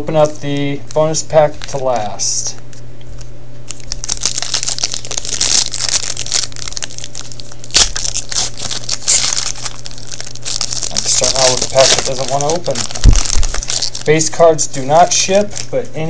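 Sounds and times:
foil pack crinkling and tearing: 0:01.1 - 0:02.4, 0:03.7 - 0:15.8
foil wrapper snapping: 0:01.5 - 0:02.1, 0:03.7 - 0:14.3.

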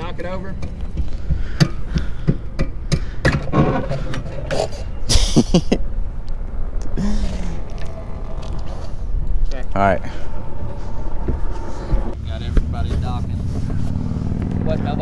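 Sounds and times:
sharp knocks and clanks: 0:00.4 - 0:04.3.

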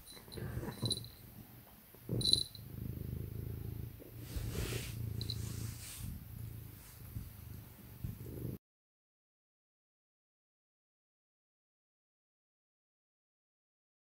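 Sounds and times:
cat purring: 0:00.0 - 0:08.6.

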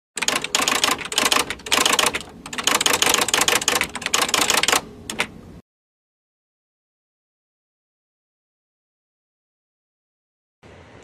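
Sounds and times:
rapid mechanical clicking and clattering: 0:00.2 - 0:05.3.

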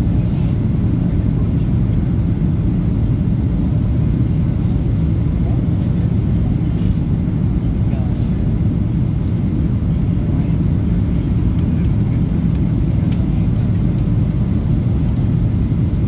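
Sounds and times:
airliner engine rumble in cabin: 0:00.0 - 0:16.0.

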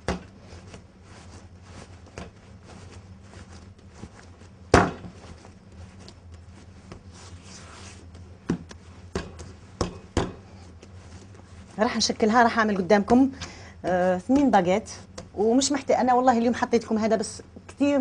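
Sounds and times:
dough pressing and rubbing: 0:00.0 - 0:15.8.

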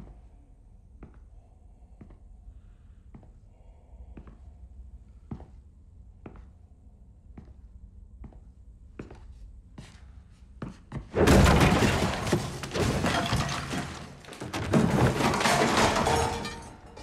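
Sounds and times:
loud crash: 0:11.2 - 0:17.0
objects smashing and clattering: 0:11.2 - 0:17.0.

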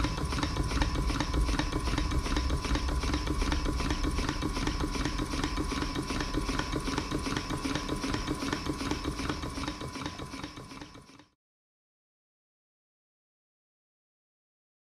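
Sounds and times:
model steam engine puffing and clicking: 0:00.0 - 0:11.3.

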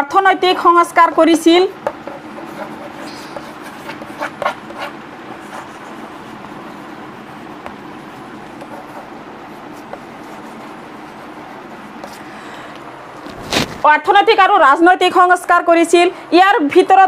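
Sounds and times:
steady background noise: 0:00.0 - 0:17.0
chalk writing on blackboard: 0:01.7 - 0:12.3.

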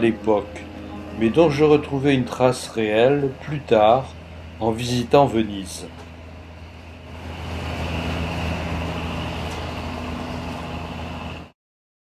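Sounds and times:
boat engine humming: 0:00.0 - 0:11.5
wind: 0:00.0 - 0:11.5.

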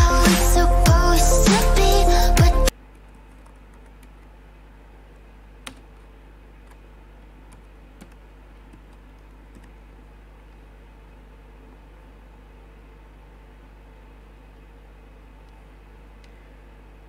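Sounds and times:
electronic music with heavy beat: 0:00.0 - 0:02.7
computer keyboard keystrokes: 0:02.9 - 0:04.3, 0:05.6 - 0:06.8, 0:07.5 - 0:09.8.

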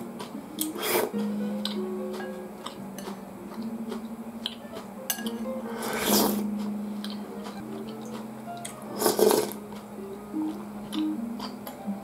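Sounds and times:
soft background music: 0:00.0 - 0:12.0
spoon clinking ceramic bowl: 0:05.1 - 0:05.4
person slurping broth: 0:05.8 - 0:06.4, 0:09.0 - 0:09.6.

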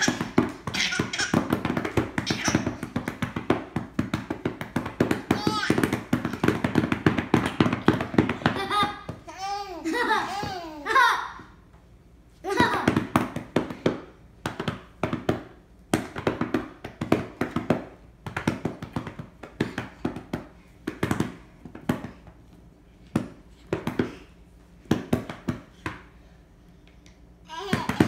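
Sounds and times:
hands slapping carpeted floor: 0:00.0 - 0:09.3.

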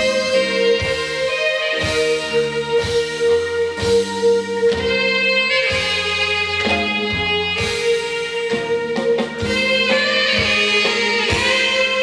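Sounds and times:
bass notes: 0:00.0 - 0:12.0.

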